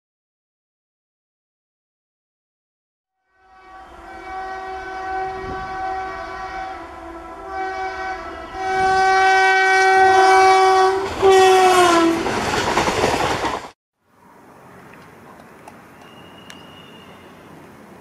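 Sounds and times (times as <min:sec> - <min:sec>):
locomotive horn blasts: 0:03.2 - 0:12.2, 0:16.0 - 0:17.4
rush of passing train: 0:03.3 - 0:18.0.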